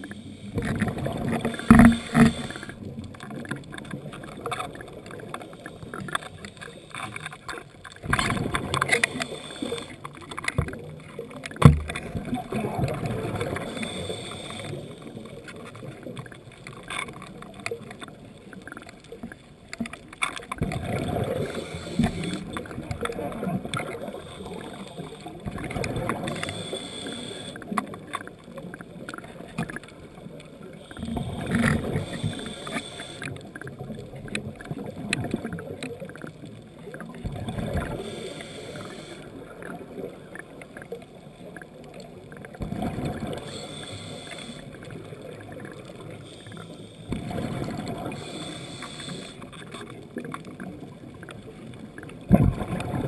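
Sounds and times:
regulator hissing inhale: 0.0 - 2.9, 8.8 - 10.2, 13.4 - 15.5, 21.2 - 22.6, 24.0 - 25.4, 26.2 - 27.8, 30.8 - 33.5, 37.8 - 39.4, 43.3 - 45.1, 46.0 - 49.7
exhaled bubbles underwater: 0.0 - 53.0.

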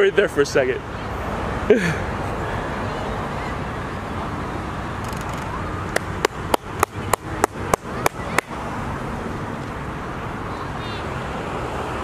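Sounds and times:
steady background noise: 0.0 - 12.0
sharp clicks: 5.0 - 7.0.

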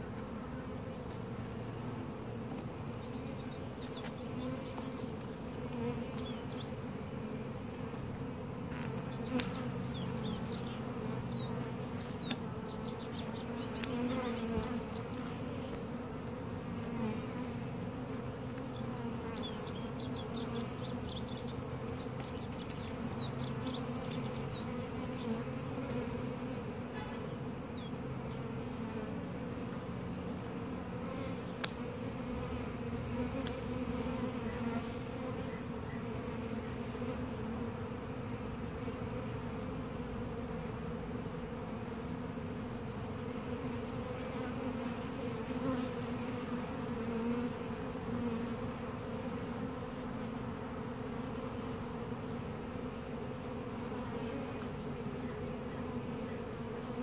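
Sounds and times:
bees buzzing: 0.0 - 57.0.

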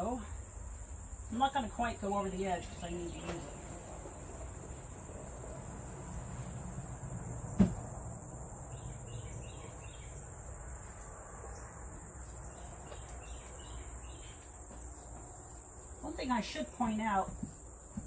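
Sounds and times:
crickets trilling: 0.0 - 18.0
sharp knock: 7.6 - 7.8.

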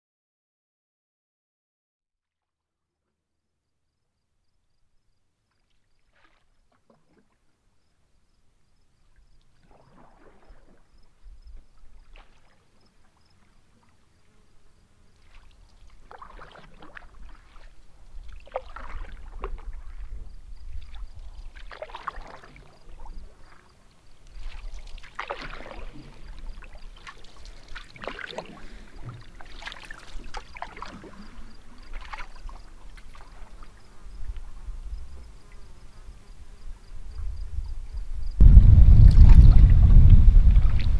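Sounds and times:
paddle splashing through water: 5.6 - 7.5, 9.6 - 11.0, 11.9 - 13.2, 15.1 - 34.5, 38.4 - 40.9
low rumble: 38.2 - 40.9.

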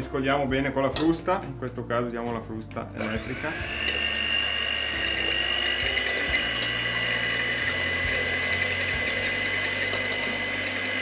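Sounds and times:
electric hand mixer whisking: 3.0 - 11.0.

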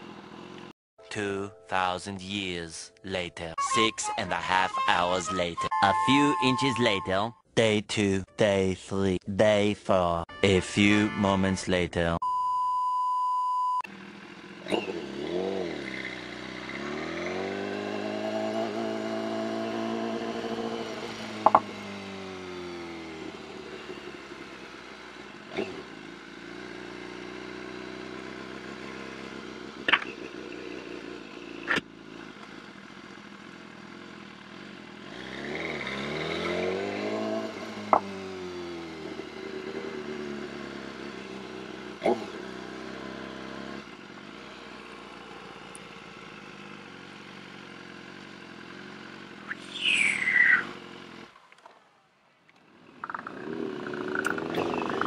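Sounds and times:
motorcycle engine revving: 0.0 - 0.7, 13.9 - 55.0
test-card beep: 5.3 - 7.4, 12.2 - 13.8.

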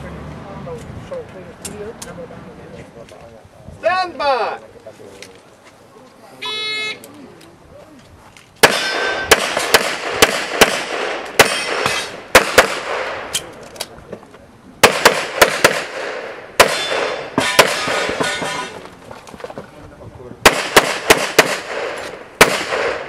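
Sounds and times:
rapid pistol shots with echo: 8.6 - 13.3, 14.8 - 18.3, 20.4 - 23.0.

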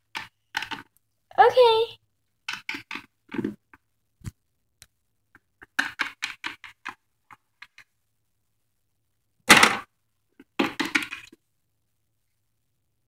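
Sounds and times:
plastic toys tapping on shelf: 0.0 - 0.9, 2.4 - 3.8, 5.4 - 7.8, 9.5 - 11.4.

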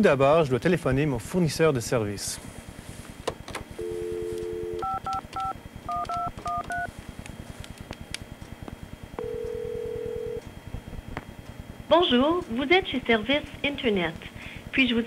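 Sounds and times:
dial tone: 3.8 - 6.9, 9.2 - 10.4
telephone ring tone: 3.8 - 6.9, 9.2 - 10.4
touch-tone beeps: 3.8 - 6.9.

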